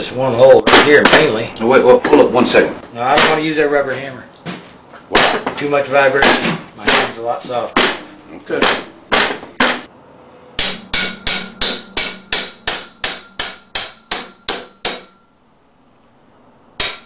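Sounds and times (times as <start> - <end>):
hammer blows on metal rotor: 10.6 - 15.4.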